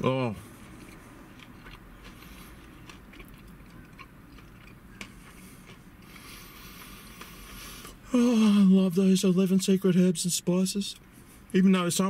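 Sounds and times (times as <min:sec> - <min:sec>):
man chewing food: 0:00.4 - 0:08.1.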